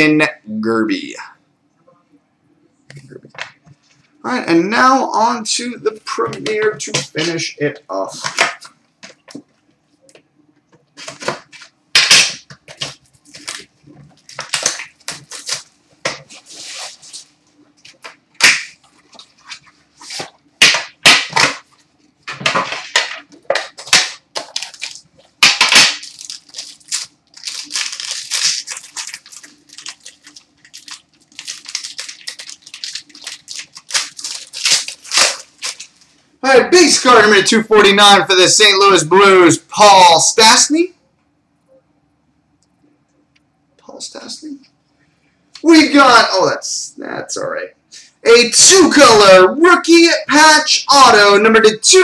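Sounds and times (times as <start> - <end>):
faint steady hum: 0.0 - 52.0
plastic wrapping crinkling: 11.0 - 36.3.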